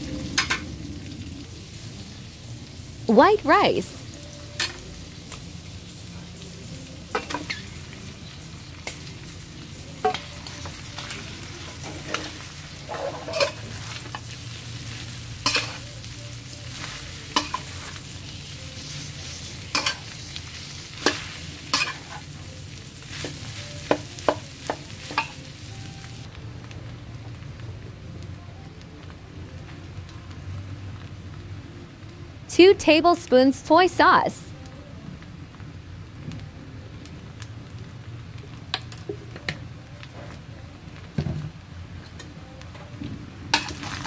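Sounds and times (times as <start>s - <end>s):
rice sizzling: 0.0s - 32.2s, 33.3s - 44.0s
metal spatula scraping a pan: 11.0s - 14.3s.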